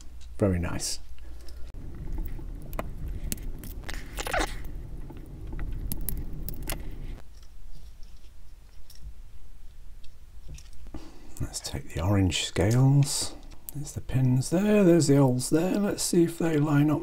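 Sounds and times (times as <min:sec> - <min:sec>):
low rubbing noise: 0:01.8 - 0:07.2.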